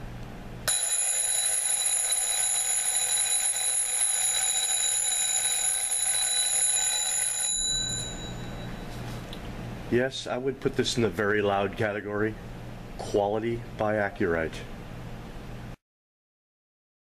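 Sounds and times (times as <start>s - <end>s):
alarm clock bells ringing: 0.7s - 8.8s.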